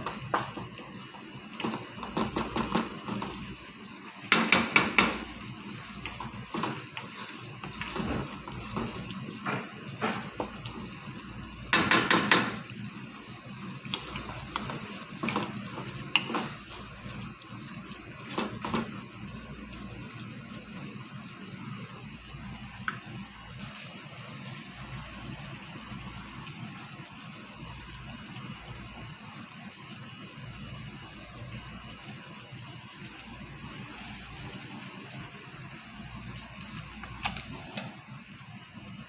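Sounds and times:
wooden spatula knocking wok: 0.0 - 0.8, 1.5 - 3.5, 4.2 - 12.7, 13.9 - 16.9, 18.2 - 19.0
sauce simmering hiss: 0.0 - 39.0.

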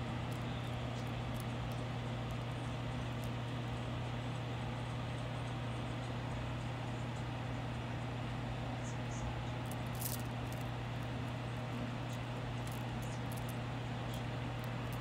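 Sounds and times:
low hum and hiss: 0.0 - 15.0
bracelet charms ticking: 9.6 - 10.7, 12.6 - 15.0.

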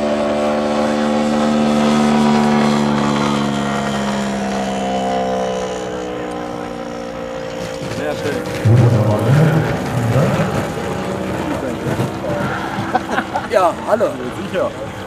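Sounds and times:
model aircraft engine droning: 0.0 - 15.0.

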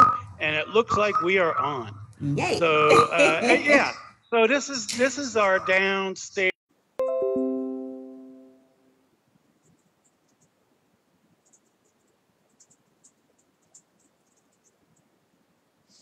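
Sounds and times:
faint high-pitched ticks: 9.6 - 10.6, 11.3 - 15.2.

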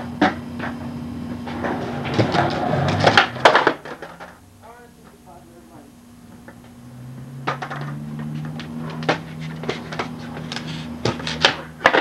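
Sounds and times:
skateboard clacks: 0.0 - 0.8, 1.4 - 4.4, 7.4 - 12.0
skateboard wheels rolling on concrete: 0.0 - 4.4, 6.3 - 12.0.

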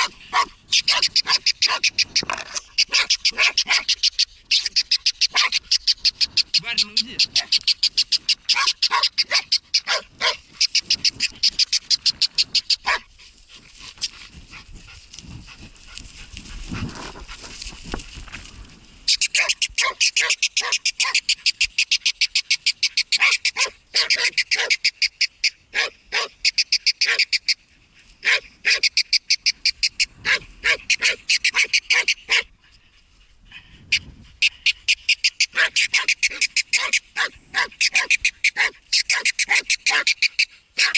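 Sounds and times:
dog barking rapidly: 0.0 - 2.2, 2.8 - 5.9, 8.2 - 11.5, 12.4 - 13.1, 19.2 - 21.4, 23.1 - 24.9, 25.7 - 26.4, 27.0 - 27.3, 28.2 - 28.9, 30.2 - 32.5, 35.4 - 40.9
rustling and handling noise: 12.9 - 19.1.

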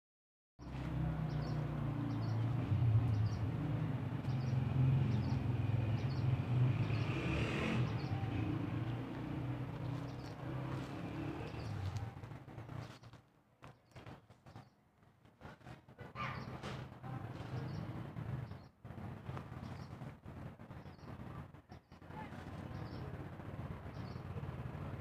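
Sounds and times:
engine droning: 0.6 - 13.1.

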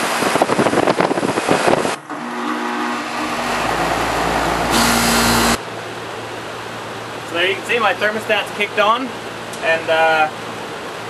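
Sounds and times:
air conditioner unit humming: 0.0 - 11.0.

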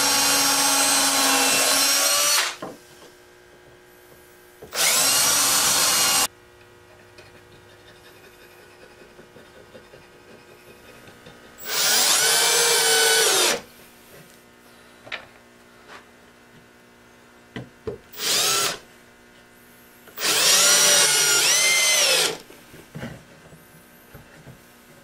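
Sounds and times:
cordless drill boring into wood: 0.0 - 2.6, 4.7 - 6.3, 11.6 - 13.6, 18.2 - 18.8, 20.2 - 22.4.

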